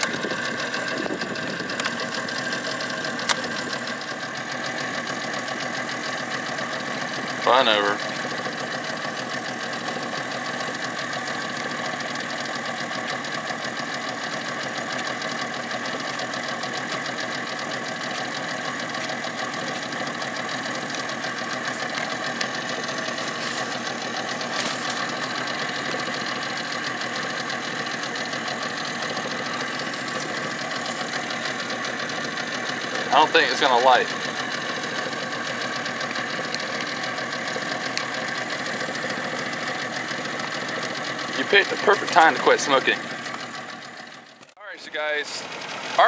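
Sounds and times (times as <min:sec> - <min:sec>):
outboard motor idling: 0:00.0 - 0:46.0.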